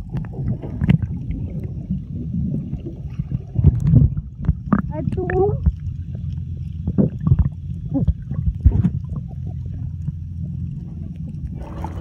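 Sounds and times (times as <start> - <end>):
underwater clicks and knocks: 0.0 - 1.4, 3.1 - 12.0
low underwater rumble: 0.0 - 12.0.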